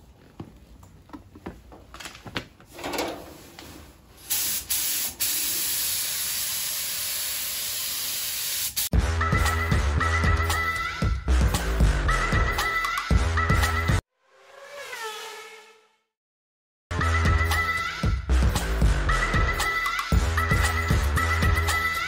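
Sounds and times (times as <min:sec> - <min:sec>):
faint clicks and handling noise: 0:00.1 - 0:03.8
paint spray gun hissing: 0:04.2 - 0:08.9
music with a steady beat: 0:08.9 - 0:14.0, 0:17.0 - 0:22.0.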